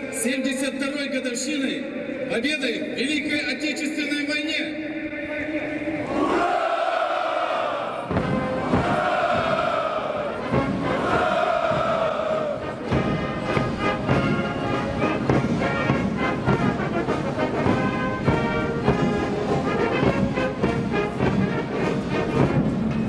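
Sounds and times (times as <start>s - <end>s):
brass band playing a march: 7.6s - 23.0s
drum beat: 8.0s - 23.0s.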